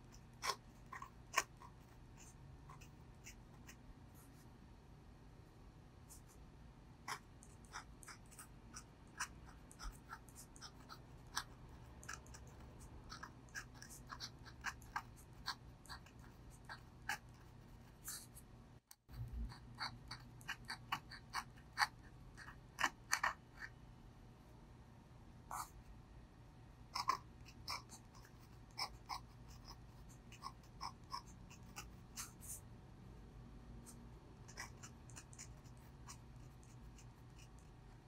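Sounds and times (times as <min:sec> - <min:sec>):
pen nib scratching paper: 0:00.0 - 0:04.5, 0:07.1 - 0:18.5, 0:25.5 - 0:25.8, 0:27.0 - 0:32.6, 0:33.8 - 0:38.0.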